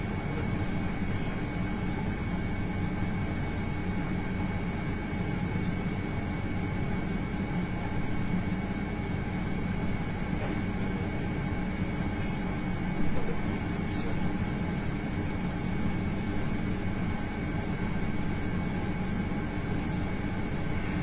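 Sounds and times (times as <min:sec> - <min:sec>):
mechanical hum with high whine: 0:00.0 - 0:21.0.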